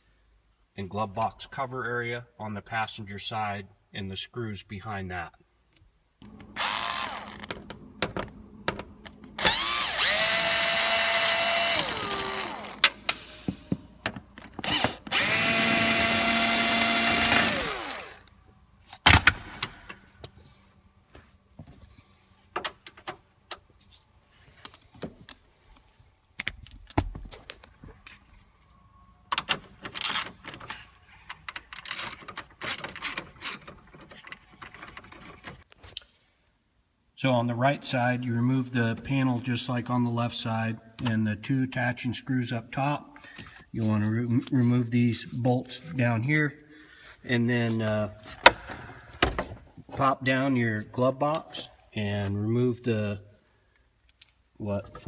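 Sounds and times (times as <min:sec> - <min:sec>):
power drill motor whirring: 0:06.4 - 0:07.6, 0:09.4 - 0:13.0, 0:14.6 - 0:18.3
screws and plastic rattling: 0:29.3 - 0:35.7.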